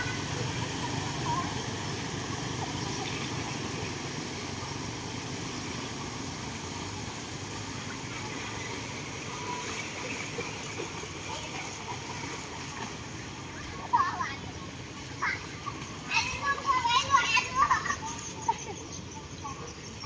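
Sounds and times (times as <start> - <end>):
faint children's voices: 0.0 - 4.9, 5.5 - 20.0
light splashing: 0.0 - 14.2
motor scooters rumbling: 0.0 - 20.0.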